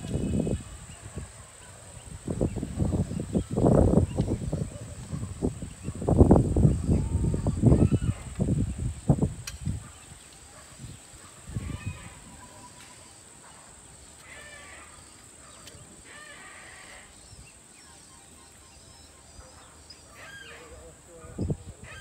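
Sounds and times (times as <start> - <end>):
steady high-pitched hiss: 0.0 - 22.0
short bird calls: 14.2 - 20.9.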